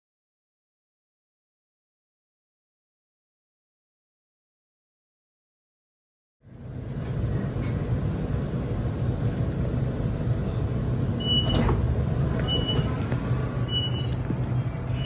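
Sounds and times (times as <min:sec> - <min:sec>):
train carriage low rumble: 0:06.4 - 0:15.0
high door beeps: 0:11.2 - 0:11.8, 0:12.4 - 0:13.0, 0:13.7 - 0:14.2.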